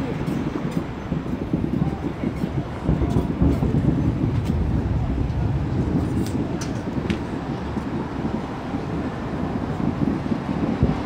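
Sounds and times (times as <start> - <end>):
distant firework booms: 2.9 - 7.8
firework cracks: 2.9 - 8.1.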